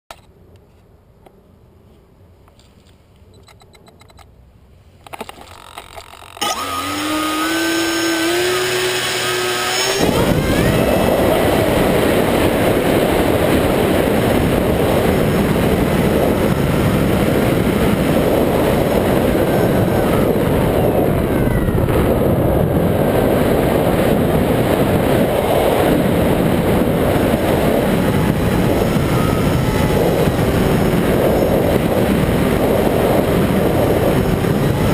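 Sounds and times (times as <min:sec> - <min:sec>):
electric motor whine: 0:05.6 - 0:22.2, 0:24.7 - 0:34.9
wind rushing: 0:06.5 - 0:34.9.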